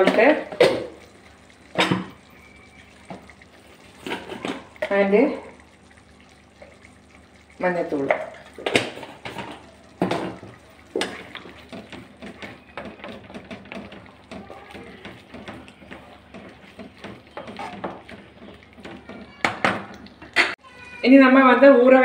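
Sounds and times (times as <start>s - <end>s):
spatula knocking on a pan: 10.0s - 20.6s.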